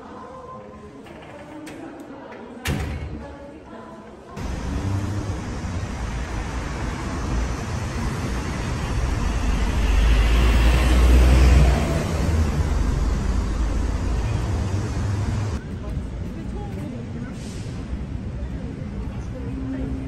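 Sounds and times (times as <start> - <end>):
truck engine rumbling: 4.4 - 18.8
street traffic: 4.4 - 20.0.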